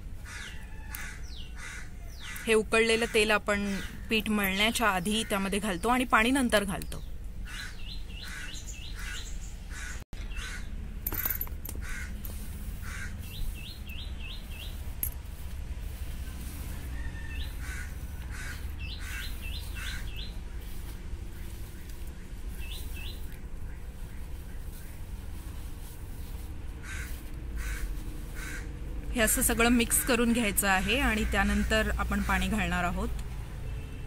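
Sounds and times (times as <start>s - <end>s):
steady low rumble: 3.9s - 33.4s
faint bird calls: 7.4s - 10.7s, 11.8s - 14.8s, 16.8s - 25.0s.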